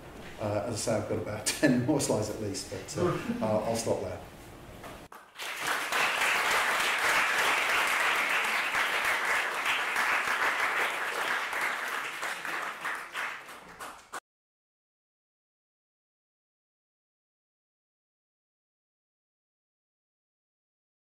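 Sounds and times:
audience applauding: 5.1 - 14.2.

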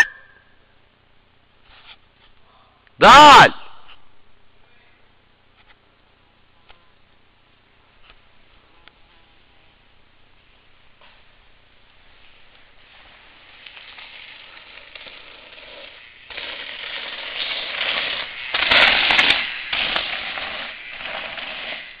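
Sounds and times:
bike tyres crunching on dirt: 12.0 - 22.0.

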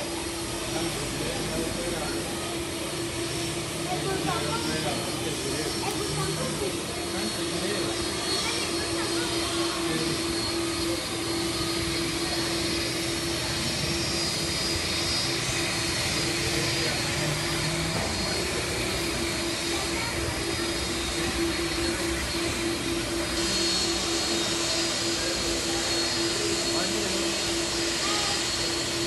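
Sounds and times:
jet engines and rushing air: 0.0 - 29.0.

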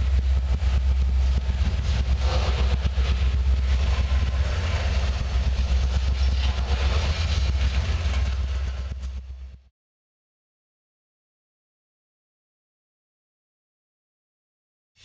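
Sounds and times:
rail clacks: 0.0 - 9.6
train wheels rumbling on rails: 0.0 - 9.7.

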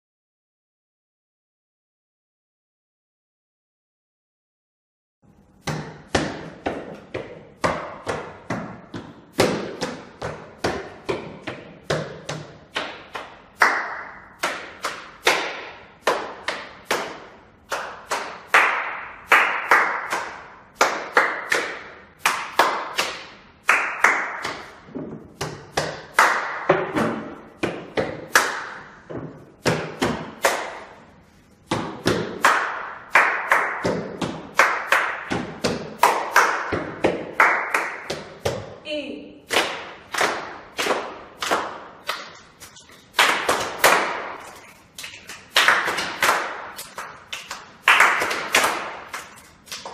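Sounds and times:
hands slapping a wall: 5.6 - 31.0, 31.6 - 38.7
hand claps: 11.5 - 26.7, 27.6 - 28.9, 29.7 - 31.0, 31.7 - 38.4, 39.5 - 49.9.

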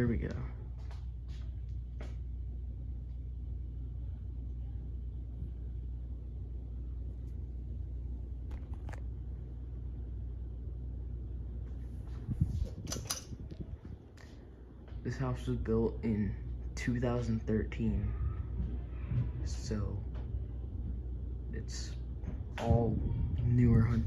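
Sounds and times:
ceiling fan humming: 0.0 - 24.0
pull chain clicks and rattle: 12.8 - 13.4.

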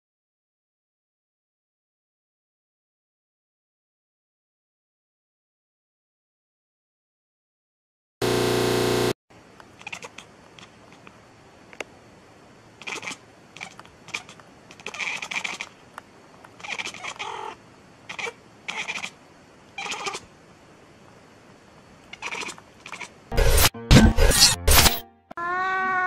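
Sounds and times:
cat meowing: 9.8 - 10.3, 12.8 - 15.8, 16.6 - 19.2, 19.8 - 20.3, 22.1 - 23.2, 25.4 - 26.0.

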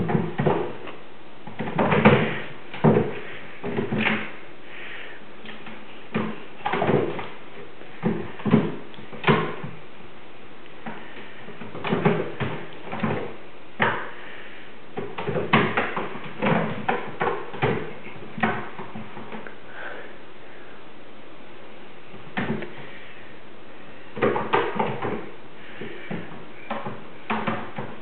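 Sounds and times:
kittens thumping on a roof: 0.0 - 4.4, 5.4 - 9.8, 10.8 - 14.2, 14.9 - 19.5, 22.2 - 22.9, 24.1 - 28.0.

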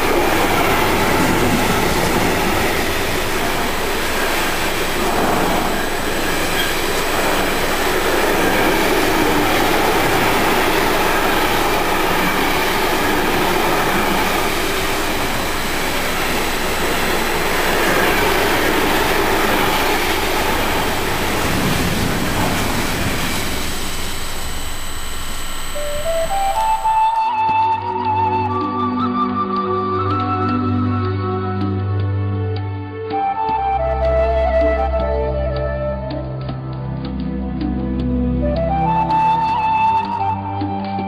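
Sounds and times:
train wheels rumbling on rails: 0.0 - 23.8
faint high tones: 22.2 - 27.2.

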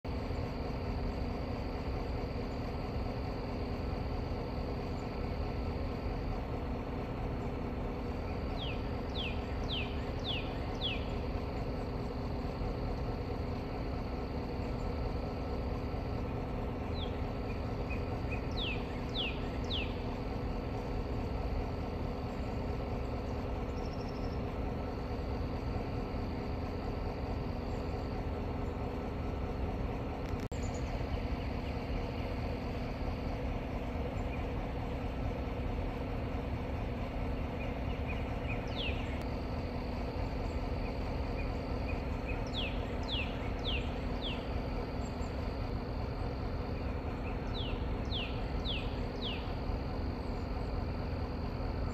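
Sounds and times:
songbird whistling: 8.2 - 11.3, 16.9 - 20.2, 37.6 - 39.2, 40.8 - 45.2, 46.8 - 49.6.

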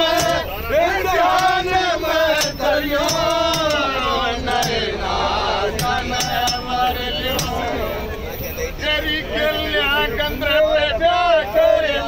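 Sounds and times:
sharp beats: 0.0 - 7.9
men singing slow chant: 0.0 - 8.0, 8.8 - 12.0
steady low rumble: 0.0 - 10.5.

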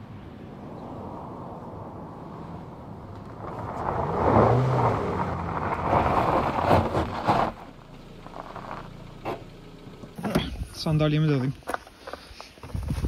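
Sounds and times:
tyres crunching on gravel: 3.0 - 13.0
car engine running: 3.1 - 12.4.

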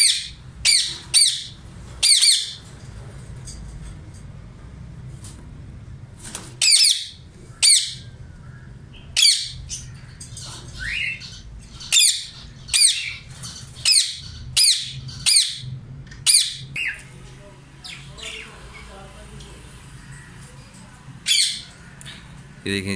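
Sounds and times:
parrot squawking: 0.0 - 2.6, 6.6 - 8.2, 9.0 - 10.0, 10.8 - 17.0, 21.2 - 22.3.

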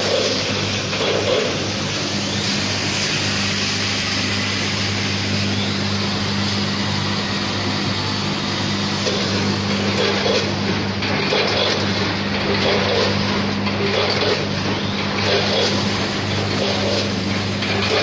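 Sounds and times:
weighing machine running: 0.0 - 18.0.

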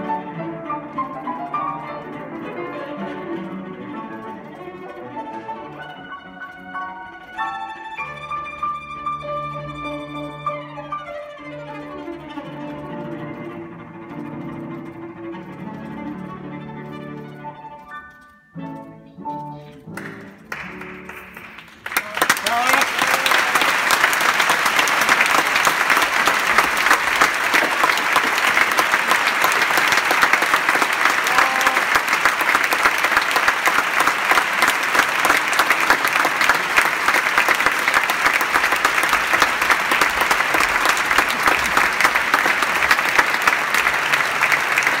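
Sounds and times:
audience applauding: 20.0 - 45.0.

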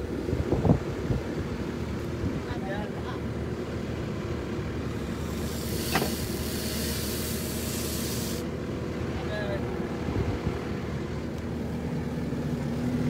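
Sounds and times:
tractor engine running: 3.2 - 13.0
hydraulic hiss: 4.9 - 8.5.

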